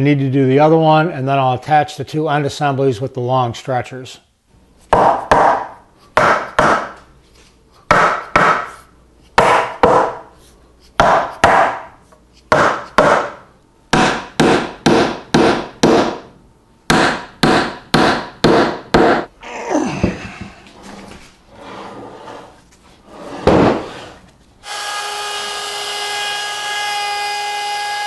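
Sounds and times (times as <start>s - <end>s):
mallet knocking wooden joints: 4.9s - 7.0s, 7.9s - 8.8s, 9.4s - 10.2s, 11.0s - 11.9s, 12.5s - 16.3s, 16.9s - 19.3s.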